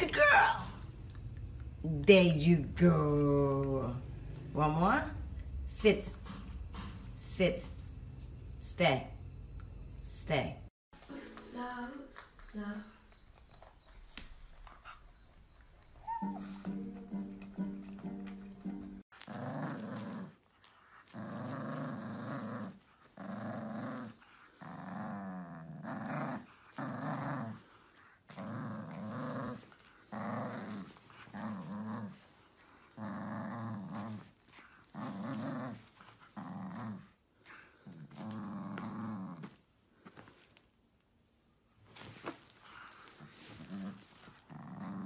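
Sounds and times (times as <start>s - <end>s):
puppy play-growling: 13.3s - 40.6s, 41.8s - 45.0s.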